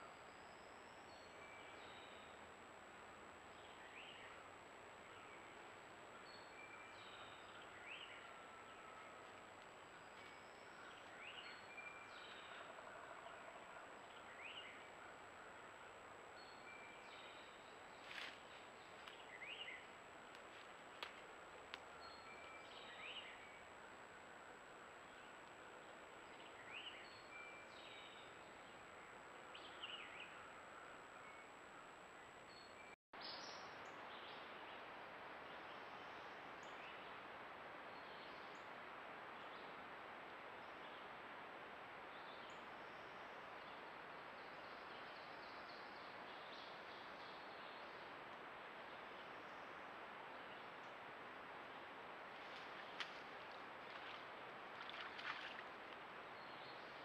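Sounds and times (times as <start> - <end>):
songbird singing: 0.0 - 2.6, 3.3 - 41.3, 42.0 - 57.0
steady low hiss: 0.0 - 57.0
faint sharp clicks: 19.0 - 19.2, 20.3 - 21.9.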